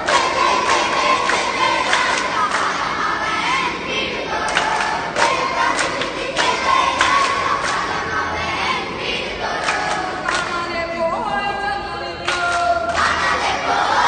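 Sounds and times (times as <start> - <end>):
sharp hand claps: 0.0 - 2.8, 4.4 - 7.9, 9.6 - 10.6
group chanting devotional song: 0.0 - 14.0.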